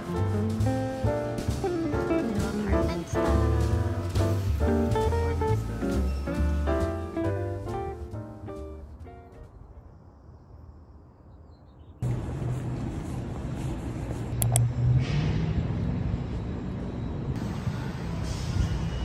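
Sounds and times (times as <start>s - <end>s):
traffic rumble: 0.0s - 19.0s
sharp click: 14.4s - 14.7s.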